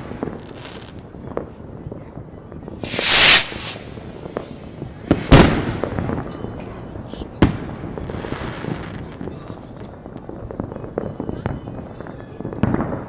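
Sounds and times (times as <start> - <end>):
firecrackers popping: 0.0 - 13.0
firework hissing rush: 2.8 - 5.8
sharp firework bangs: 2.8 - 9.5.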